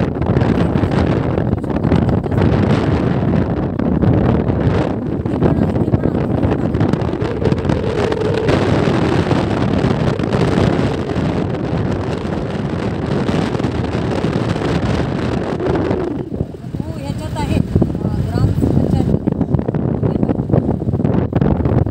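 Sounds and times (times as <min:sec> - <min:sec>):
wind buffeting microphone: 0:00.0 - 0:21.9.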